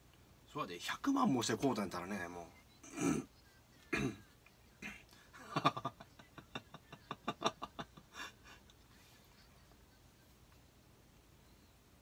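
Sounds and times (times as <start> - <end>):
man chuckling: 4.8 - 10.2.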